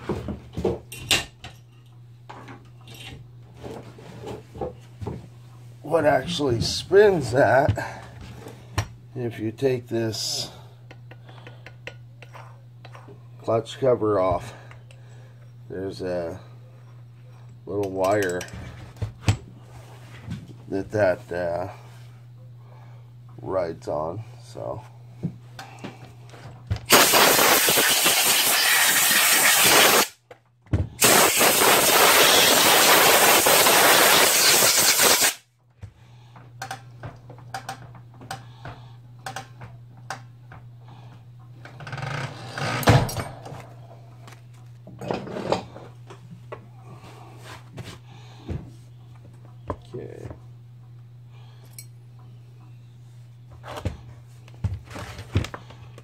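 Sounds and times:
low steady hum: 0.0s - 26.9s, 35.4s - 56.0s
loud rushing hiss: 26.9s - 30.1s, 31.0s - 35.4s.

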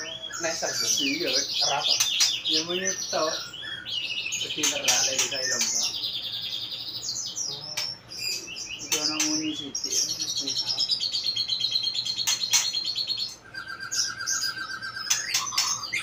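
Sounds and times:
bird singing trills: 0.0s - 16.0s
sharp bird clicks: 1.9s - 2.5s, 11.0s - 16.0s.

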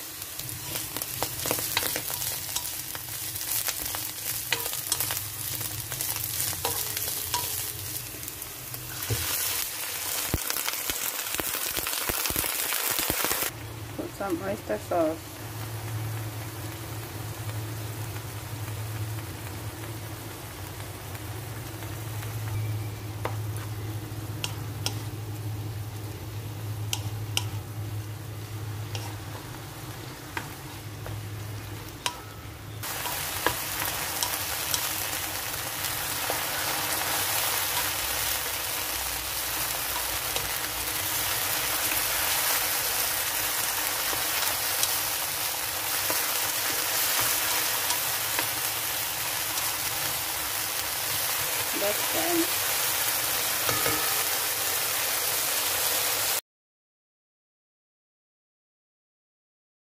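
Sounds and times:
beans sizzling in a pan: 0.0s - 56.4s
spatula tapping pan: 53.6s - 54.4s.

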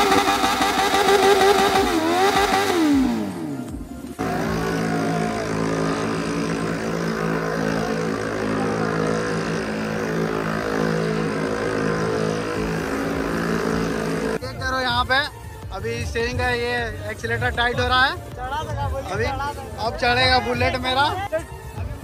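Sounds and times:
motorcycle engine winding down: 0.0s - 14.4s
steady engine drone: 0.0s - 22.0s
music: 2.6s - 22.0s.

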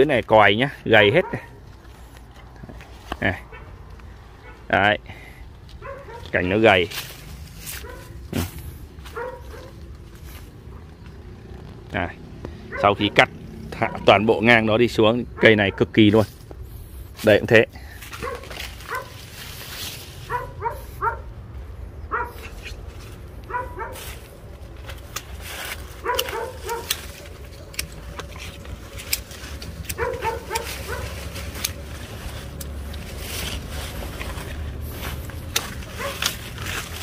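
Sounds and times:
pruning shears snipping: 5.7s - 10.4s, 22.2s - 37.0s
small dog yapping: 9.1s - 9.8s, 18.2s - 19.2s, 20.3s - 21.3s, 22.1s - 22.5s, 23.5s - 24.0s, 26.0s - 27.7s, 29.9s - 31.2s, 36.0s - 36.3s.

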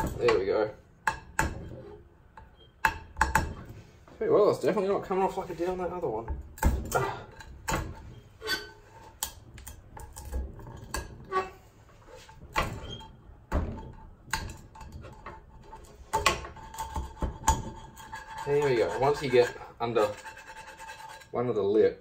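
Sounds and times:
plastic scraping a frying pan: 9.8s - 21.4s.

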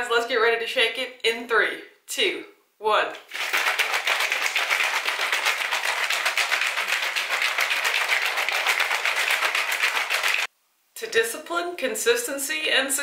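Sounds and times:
shaker cup rattling: 3.2s - 10.5s.

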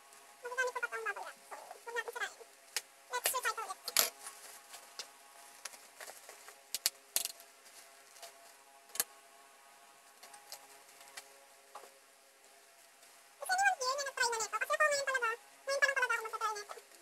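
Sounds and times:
bubble wrap crackling: 0.0s - 9.2s
faint steady hum: 0.0s - 17.0s.

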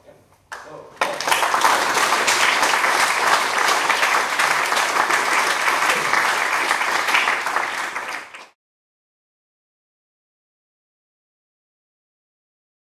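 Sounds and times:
audience applauding: 0.6s - 8.6s.

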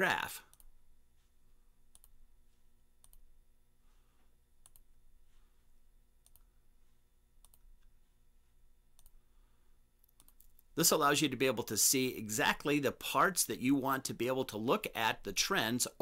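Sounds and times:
computer mouse clicks: 1.9s - 2.2s, 3.0s - 3.3s, 4.6s - 4.9s, 6.2s - 6.5s, 7.4s - 7.9s, 8.9s - 9.2s, 10.0s - 10.7s.

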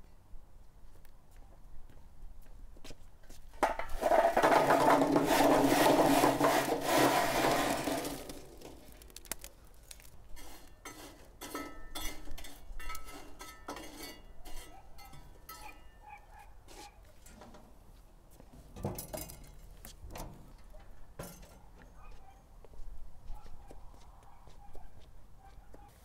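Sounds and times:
charcoal clattering onto metal: 3.6s - 14.6s
tongs clinking and scraping coals: 3.9s - 17.6s.

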